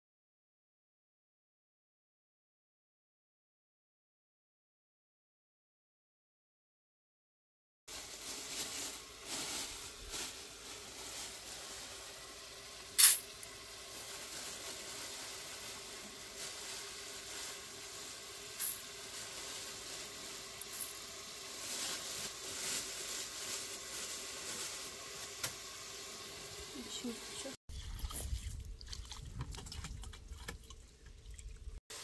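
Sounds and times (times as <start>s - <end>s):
dry lentils rustling: 7.9s - 12.2s
gas burner hissing: 11.9s - 14.0s.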